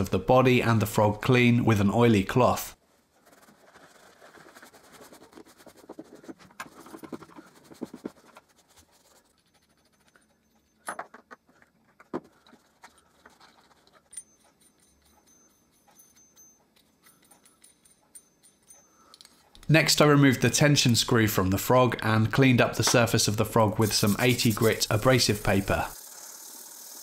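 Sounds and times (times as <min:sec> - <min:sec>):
handling small metal parts: 0:03.2 - 0:19.7
light metal clinks: 0:12.8 - 0:19.7
rag rubbing on metal: 0:22.6 - 0:26.0.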